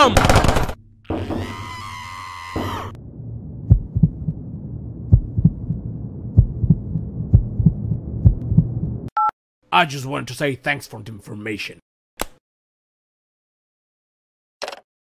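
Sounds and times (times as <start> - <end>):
low droning hum: 0.8 - 9.1
heartbeat double thumps: 3.5 - 9.1.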